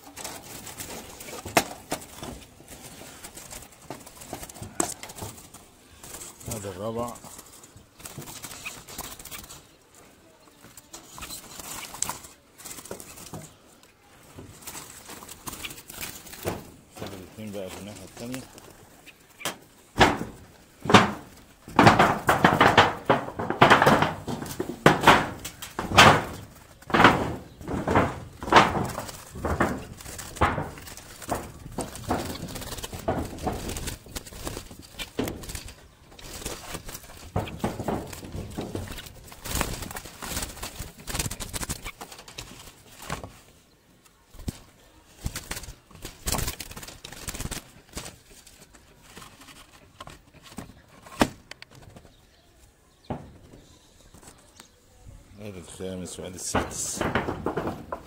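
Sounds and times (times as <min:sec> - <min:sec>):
loud thuds: 0:14.4 - 0:18.6, 0:19.4 - 0:41.9, 0:53.1 - 0:53.7, 0:55.6 - 0:58.0.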